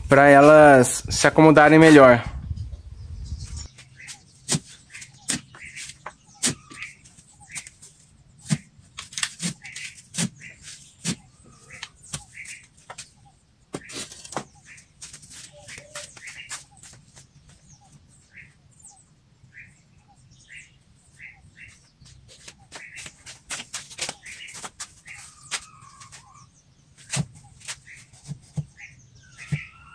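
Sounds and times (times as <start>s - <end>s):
birds chirping: 0.0s - 29.9s
spade scraping: 13.8s - 16.6s.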